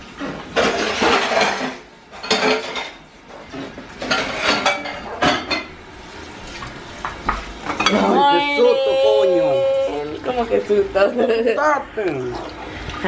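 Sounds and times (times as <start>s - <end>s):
dishes and cutlery clinking: 0.2s - 5.8s, 7.1s - 8.2s.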